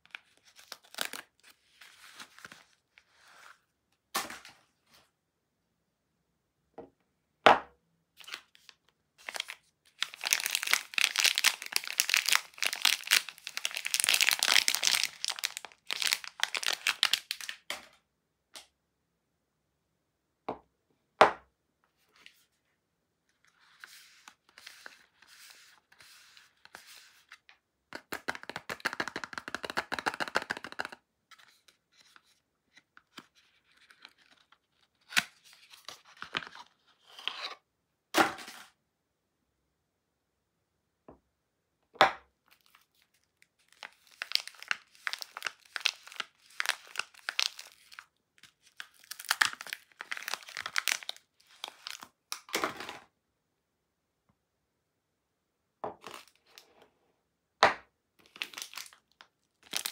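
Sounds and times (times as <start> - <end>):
packaging crinkling: 0.4 - 1.4, 8.2 - 17.7, 42.5 - 52.1, 58.2 - 59.9.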